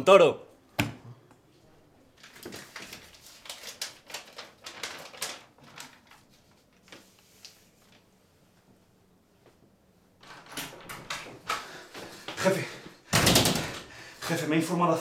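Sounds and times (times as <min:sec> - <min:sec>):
paper rustling and crinkling: 0:02.2 - 0:08.2.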